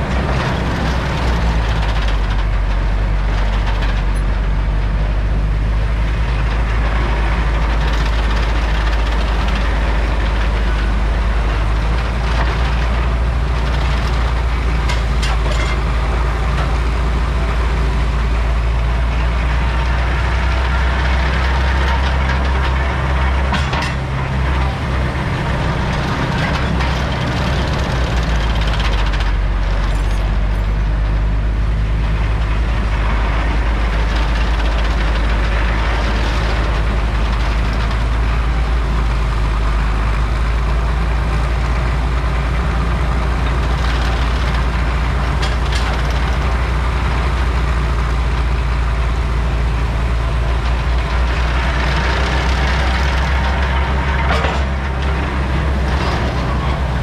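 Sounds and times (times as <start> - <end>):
heavy engines running: 0.0 - 57.0
metal clanks: 14.7 - 16.8.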